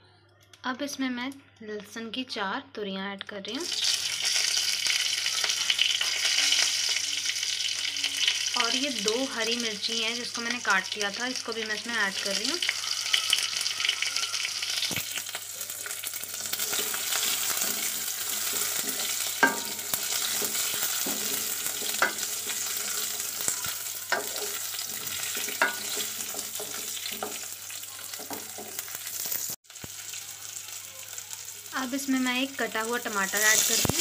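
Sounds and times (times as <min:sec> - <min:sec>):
spices sizzling in hot oil: 0:03.5 - 0:34.0.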